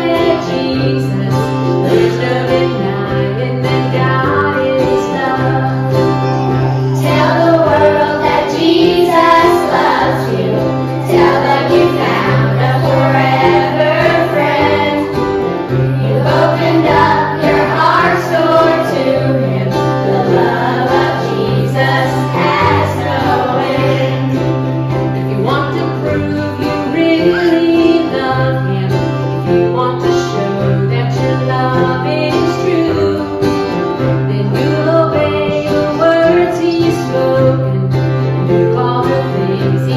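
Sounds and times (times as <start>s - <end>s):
children's choir singing: 0.0s - 29.2s, 34.4s - 37.7s
acoustic guitar: 0.0s - 39.9s
woman's voice leading: 25.2s - 29.0s.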